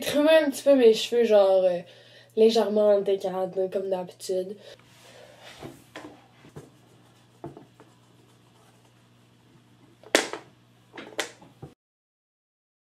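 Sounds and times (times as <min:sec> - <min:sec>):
low steady hum: 0:00.0 - 0:11.8
rustling brushes: 0:04.8 - 0:09.7.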